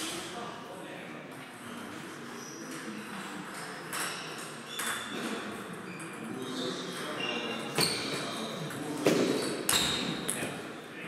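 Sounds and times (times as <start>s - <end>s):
table tennis ball bouncing: 3.6s - 5.3s.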